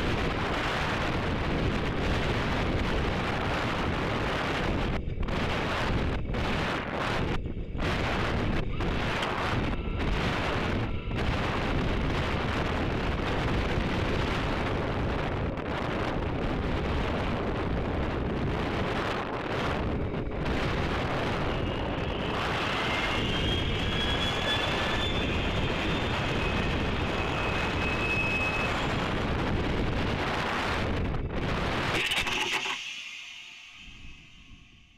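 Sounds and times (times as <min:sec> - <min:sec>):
wind rushing over microphone: 0:00.0 - 0:32.6
faint high whistle: 0:21.4 - 0:29.1, 0:32.0 - 0:34.9.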